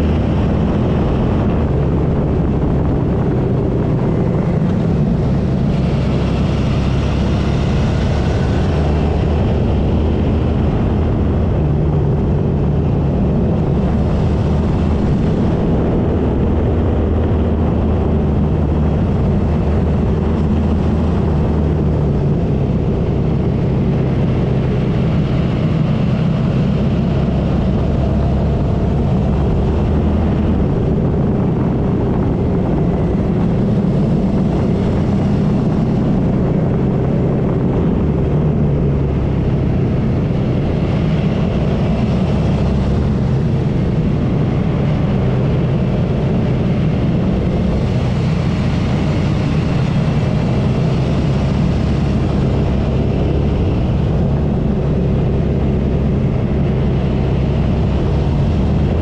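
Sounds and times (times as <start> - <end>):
motorcycle engine running: 0.0 - 59.0
wind rushing: 0.0 - 59.0.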